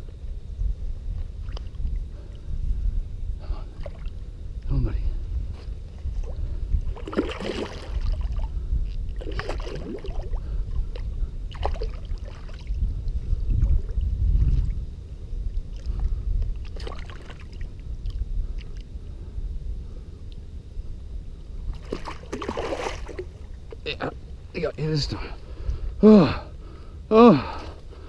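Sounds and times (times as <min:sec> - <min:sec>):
constant low rumble: 0:00.0 - 0:28.0
fish thrashing splashing water: 0:06.9 - 0:08.4, 0:09.2 - 0:10.3, 0:21.8 - 0:23.3.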